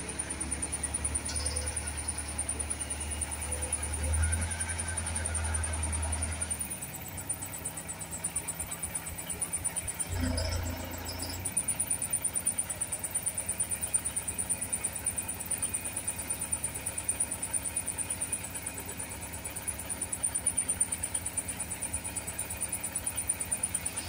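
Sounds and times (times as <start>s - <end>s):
diesel engine throbbing: 0.0s - 14.4s.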